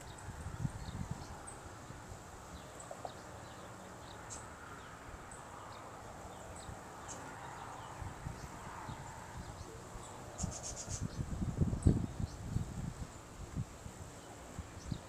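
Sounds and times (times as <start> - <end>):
wind buffeting the microphone: 0.0 - 3.3, 6.3 - 15.0.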